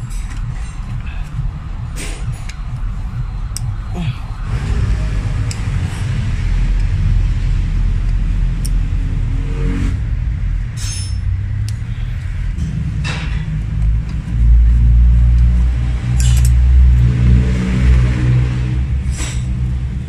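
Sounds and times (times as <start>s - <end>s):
loud steady low rumble: 0.0s - 20.0s
light metal clicks: 16.2s - 16.6s.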